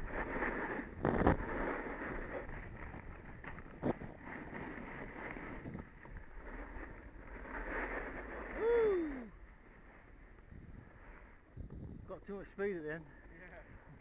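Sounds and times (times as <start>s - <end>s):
wind on microphone: 0.0s - 9.3s, 10.4s - 12.2s
snowboard sliding over snow: 0.0s - 14.0s
person shouting: 8.6s - 9.3s.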